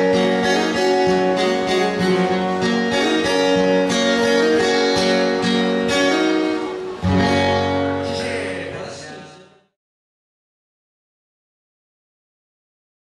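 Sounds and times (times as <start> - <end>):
acoustic guitars strumming: 0.0 - 9.8.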